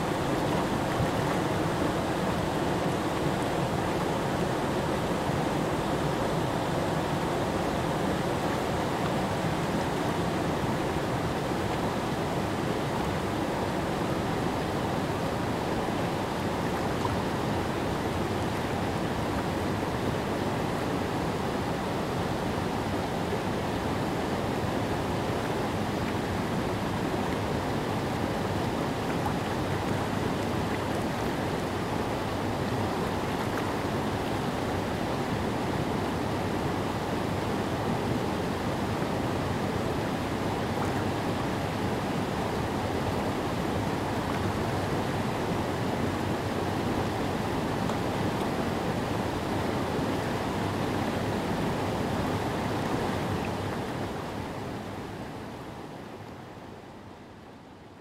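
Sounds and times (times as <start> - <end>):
water rushing over rocks: 0.0 - 56.2.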